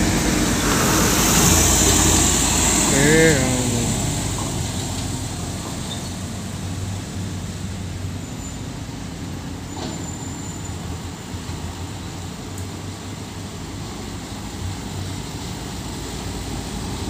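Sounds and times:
truck diesel engine pulling away: 0.0 - 12.4
other truck engines: 0.0 - 17.0.

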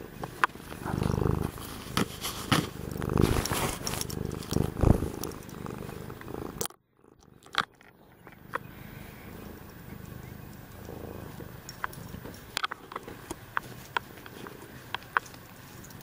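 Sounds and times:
cat purring: 0.0 - 16.0
fur rubbing on microphone: 0.6 - 6.1.

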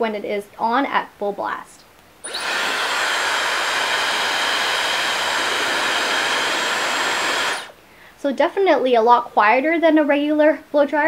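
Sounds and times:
hair dryer running: 2.2 - 7.8.

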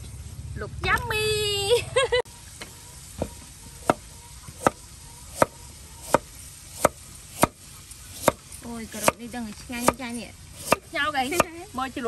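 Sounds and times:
knife chopping carrot on wooden board: 3.8 - 8.4, 9.8 - 11.6.

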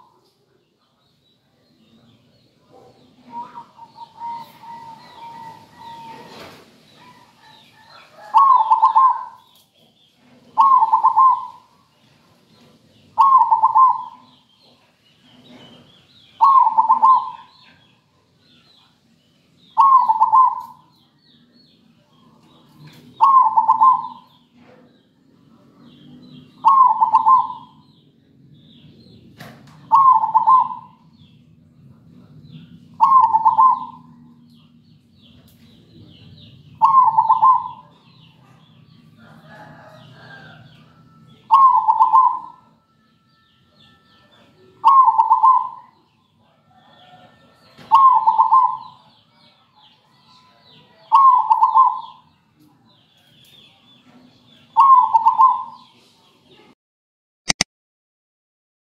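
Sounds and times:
dove cooing: 2.6 - 9.6, 10.4 - 11.7, 13.2 - 14.4, 16.4 - 17.9, 19.7 - 20.9, 23.1 - 24.4, 26.4 - 27.9, 29.8 - 31.0, 33.0 - 34.3, 36.8 - 38.6, 41.3 - 42.7, 44.8 - 46.0, 46.7 - 49.1, 51.0 - 52.3, 54.7 - 55.9.

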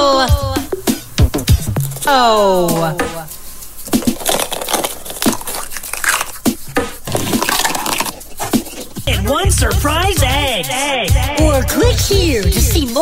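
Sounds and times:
plastic eggs clicking and snapping: 1.3 - 2.2, 3.8 - 9.1
plastic rustling: 1.3 - 2.6, 3.3 - 9.1.

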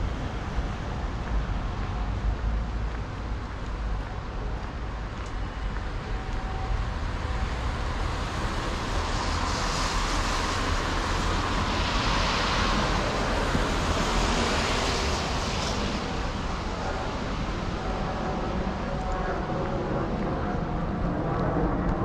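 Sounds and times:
street traffic: 0.0 - 22.0
tyres hissing on wet road: 7.2 - 18.8.

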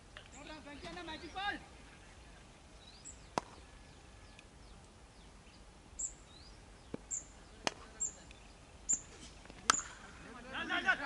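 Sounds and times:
bird chirps: 0.2 - 10.0.

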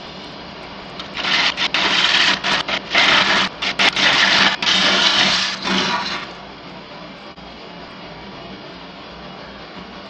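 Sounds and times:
gouge cutting wood on lathe: 1.0 - 6.4
lathe humming: 1.0 - 6.4.

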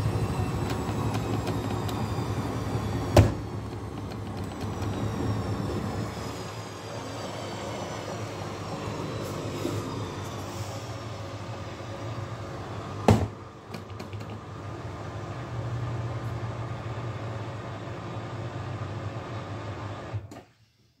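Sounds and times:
washing machine spin rumble: 0.0 - 20.3.

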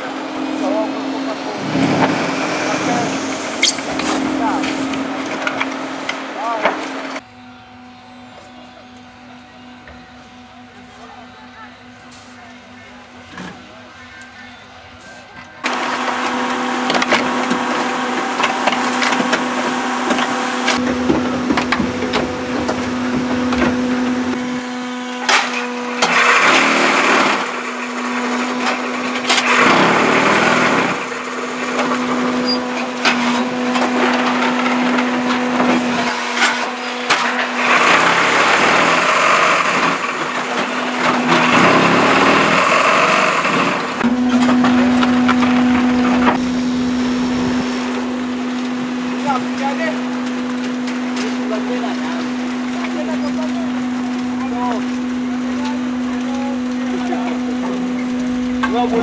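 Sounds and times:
machine hum: 0.0 - 59.0
loud machine rattling: 0.6 - 7.2, 25.2 - 56.2.

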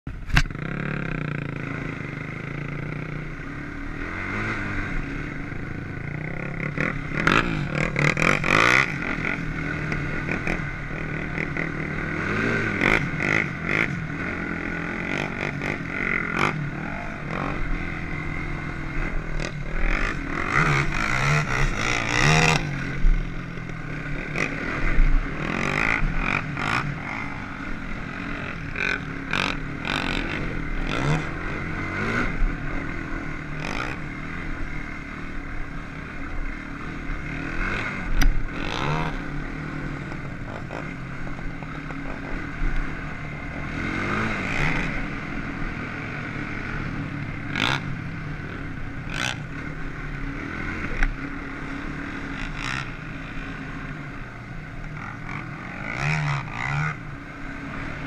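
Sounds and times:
atv engine revving: 0.1 - 58.0.

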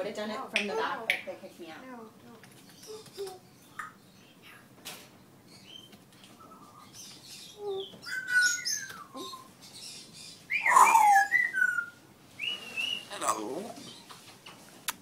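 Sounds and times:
parrot whistling and chirping: 5.6 - 9.5, 10.5 - 13.4.

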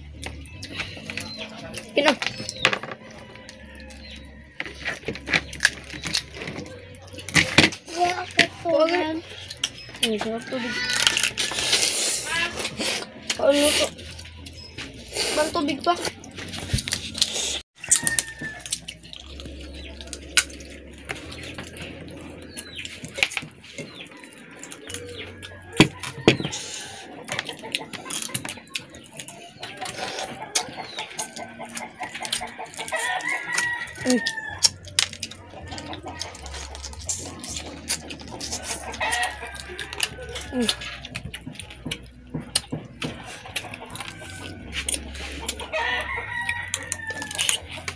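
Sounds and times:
chickens clucking: 0.0 - 47.9
rooster crowing: 3.0 - 5.0, 10.3 - 11.7, 17.8 - 18.9, 29.8 - 36.3, 38.6 - 41.0, 43.0 - 47.7
crab shells cracking: 9.4 - 12.6, 16.2 - 26.3, 27.3 - 47.9.

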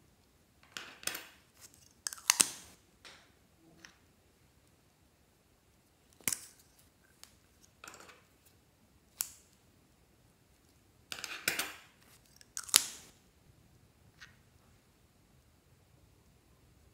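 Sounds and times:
plastic caps clicking: 1.8 - 2.7.

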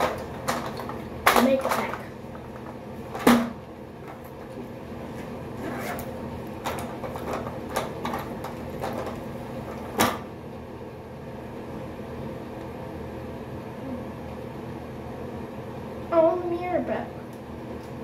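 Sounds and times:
objects knocking: 6.6 - 10.2.

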